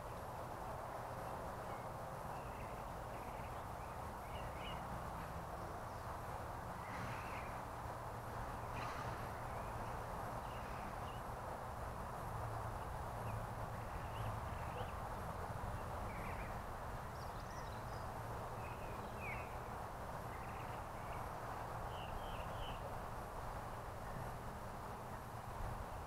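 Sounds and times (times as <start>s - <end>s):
small birds chirping: 1.2s - 6.2s, 8.6s - 11.4s, 12.7s - 23.0s.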